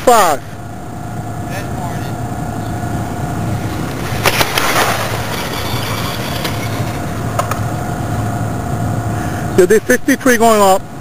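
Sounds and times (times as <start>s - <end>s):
rc car passing at speed: 3.1s - 8.0s.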